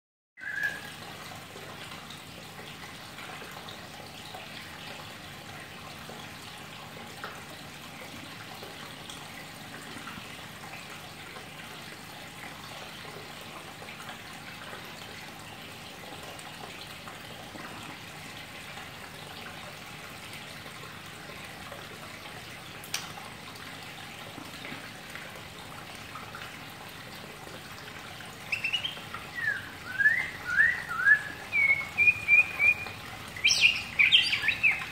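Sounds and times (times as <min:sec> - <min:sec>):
bird whistling rising notes: 0:00.4 - 0:00.9, 0:28.5 - 0:34.9
water trickling: 0:00.4 - 0:34.9.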